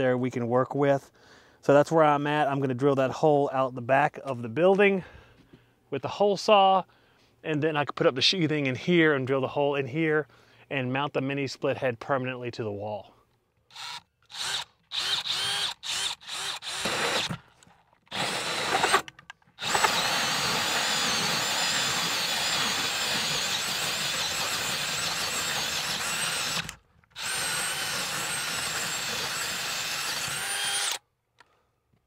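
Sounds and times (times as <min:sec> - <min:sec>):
cordless drill with hole saw: 0:13.7 - 0:31.0.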